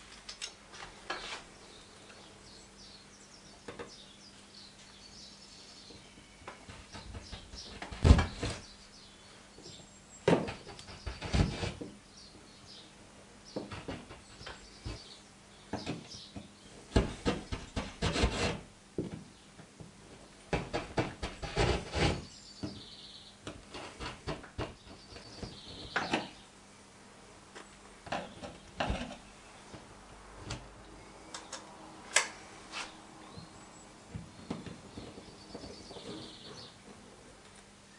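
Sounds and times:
awl scratching plaster: 0:10.5 - 0:12.0, 0:16.9 - 0:18.7, 0:20.6 - 0:22.4, 0:23.5 - 0:26.0.

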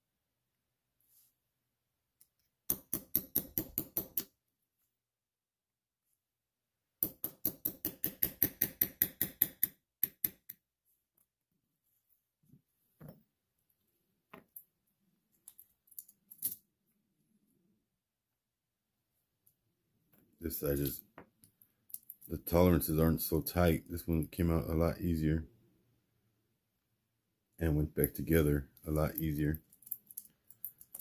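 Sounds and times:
small hammer tapping metal punch: 0:02.7 - 0:04.3, 0:07.0 - 0:10.6
metal links clicking: 0:15.4 - 0:16.6, 0:29.6 - 0:31.0.

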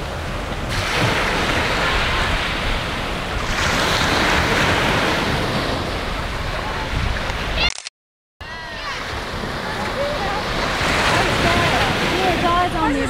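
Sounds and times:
sea water sloshing: 0:00.0 - 0:07.4
wind noise on microphone: 0:00.0 - 0:07.6.

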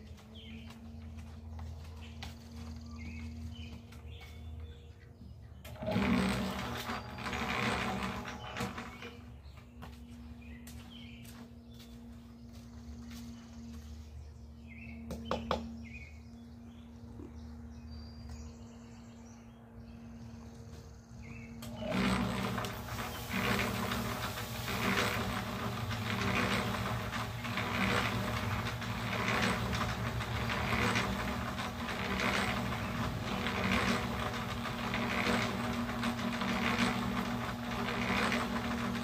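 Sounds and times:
small birds chirping: 0:00.0 - 0:05.8, 0:08.4 - 0:21.9
cement mixer humming: 0:00.0 - 0:39.0.

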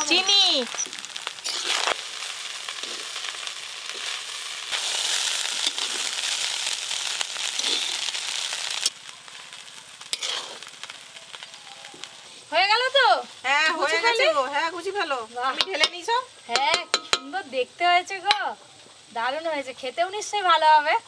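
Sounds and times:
fried rice sizzling: 0:00.0 - 0:21.0
metal spatula stirring: 0:01.4 - 0:02.1, 0:10.1 - 0:10.8, 0:15.6 - 0:17.3
spatula tapping on pan: 0:15.6 - 0:17.4.

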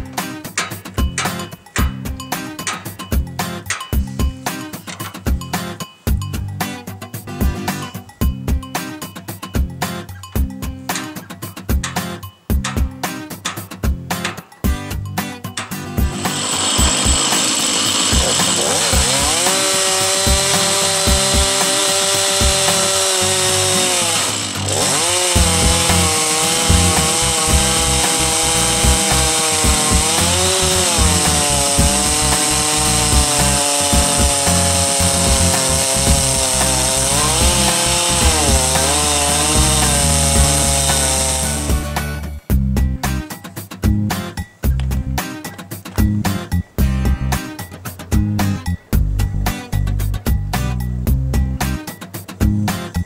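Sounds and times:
chainsaw cutting log under load: 0:00.0 - 0:03.1, 0:15.6 - 0:42.3.

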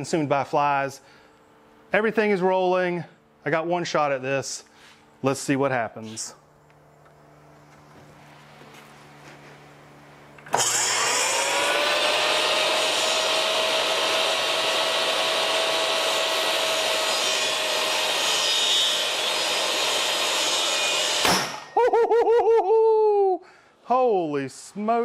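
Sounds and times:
saw blade brake stopping: 0:10.4 - 0:11.5
table saw motor whine: 0:10.4 - 0:21.3.

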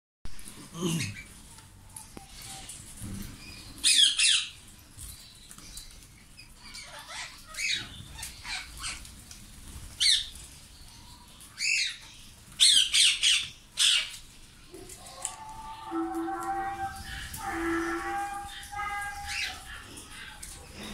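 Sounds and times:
parakeets squawking: 0:06.6 - 0:09.1, 0:12.6 - 0:20.9.

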